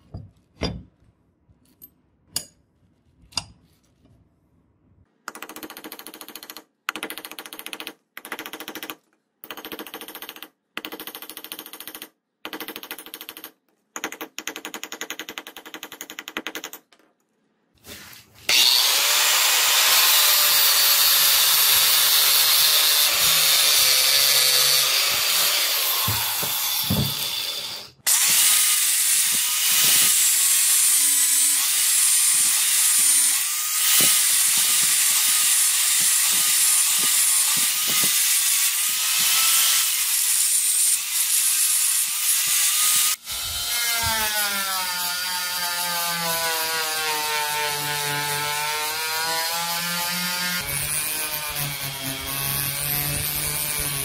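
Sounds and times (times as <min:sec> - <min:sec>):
power tool whine: 0:18.5 - 0:38.2.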